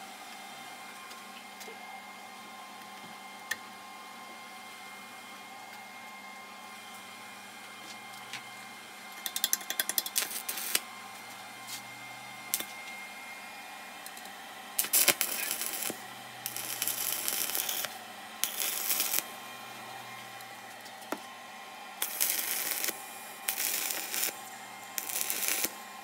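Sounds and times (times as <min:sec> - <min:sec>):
steady hum: 0:00.0 - 0:26.0
welding arc crackling and hissing: 0:09.1 - 0:21.3, 0:22.0 - 0:26.0
metal clicks and taps: 0:09.2 - 0:10.2.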